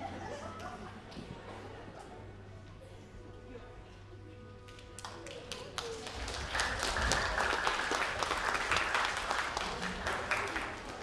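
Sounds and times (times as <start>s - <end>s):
audience clapping: 5.0s - 11.0s.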